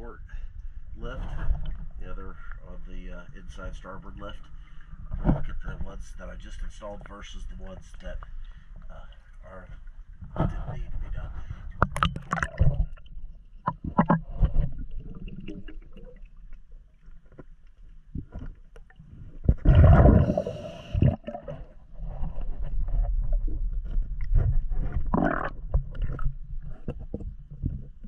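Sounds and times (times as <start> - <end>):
low underwater rumble: 0.0 - 28.0
diver exhaling bubbles: 19.2 - 23.5, 24.2 - 26.8.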